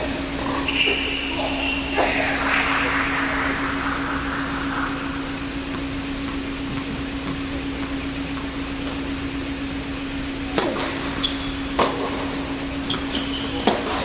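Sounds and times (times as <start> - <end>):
ventilation hum: 0.0 - 14.0
shoe squeak: 0.6 - 1.9, 11.2 - 11.7, 12.9 - 13.6.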